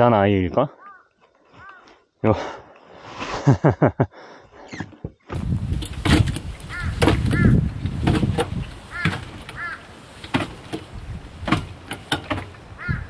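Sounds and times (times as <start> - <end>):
crow cawing: 0.7 - 2.0, 6.6 - 7.7, 8.8 - 10.0, 12.7 - 13.0
sharp clicks and knocks: 4.8 - 12.7
wind rumble on microphone: 5.3 - 13.0.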